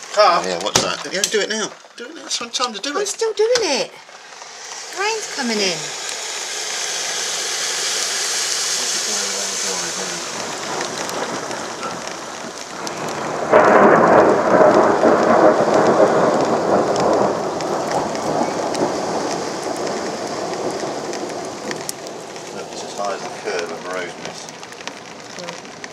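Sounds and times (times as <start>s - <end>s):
heavy rain on a street: 0.0s - 25.9s
thunderclap rumbling: 8.8s - 25.9s.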